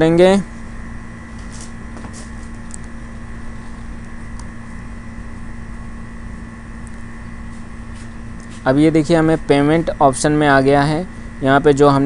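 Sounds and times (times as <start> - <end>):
machine hum: 0.0 - 12.0.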